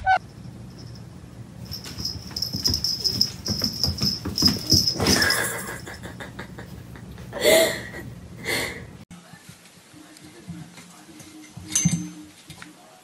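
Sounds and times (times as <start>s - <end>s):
steady high whine: 0.0s - 4.9s.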